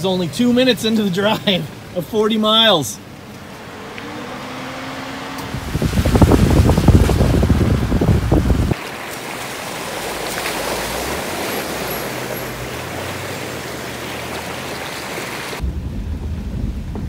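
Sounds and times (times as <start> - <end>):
water rushing and splashing: 0.0 - 17.0
wind and road rumble: 0.0 - 17.0
low driving rumble: 3.0 - 8.8, 15.6 - 17.0.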